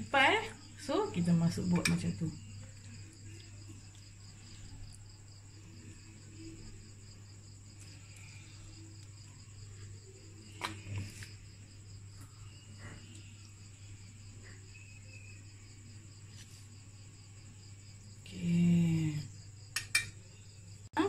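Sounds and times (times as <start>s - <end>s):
insects chirping: 0.0s - 21.0s
metal spoon clicking: 19.8s - 20.2s.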